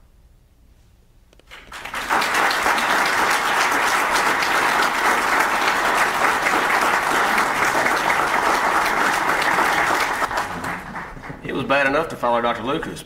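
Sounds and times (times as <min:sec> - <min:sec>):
audience applauding: 0:01.5 - 0:11.8.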